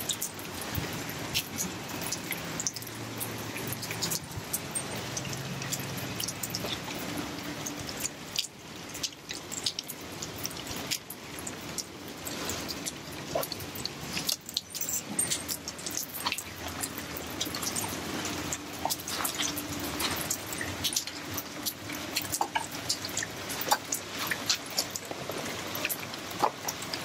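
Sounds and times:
rain dripping on concrete: 0.0 - 27.0.

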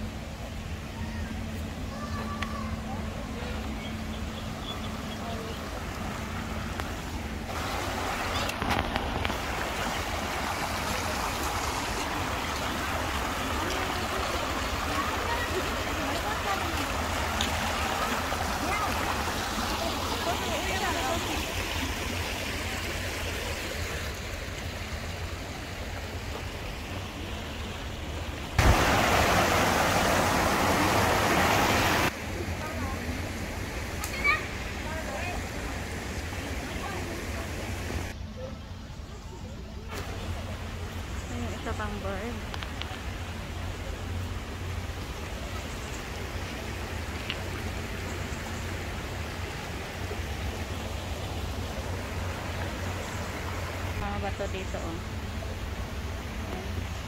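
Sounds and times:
stream rushing over rocks: 1.4 - 38.2, 39.9 - 57.0.

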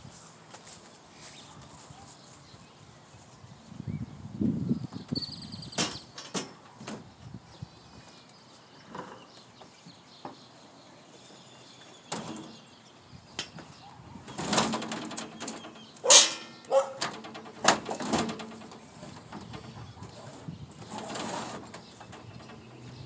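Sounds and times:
metal knocks and clunks: 13.4 - 23.0.

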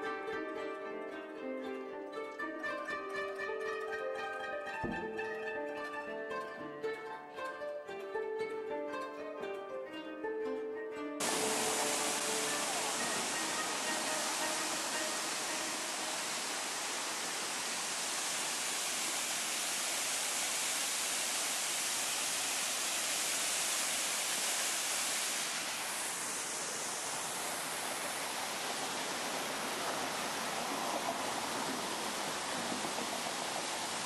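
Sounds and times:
waterfall rushing: 11.2 - 34.0.

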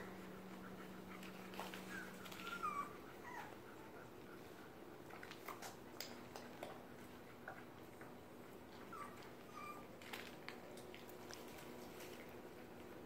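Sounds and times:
puppies squeaking: 1.8 - 3.5, 8.9 - 9.8.

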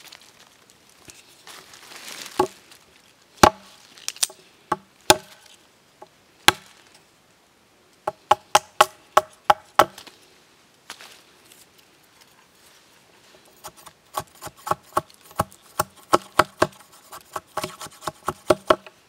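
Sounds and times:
machete chopping bamboo: 3.4 - 5.5, 6.5 - 6.8, 8.1 - 10.0, 13.6 - 18.9.

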